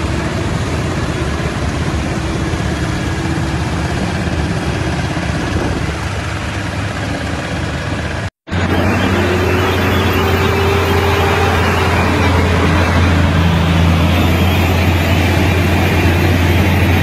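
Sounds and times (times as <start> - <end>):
heavy diesel truck engines: 0.0 - 17.0
road and tyre hiss: 0.0 - 17.0.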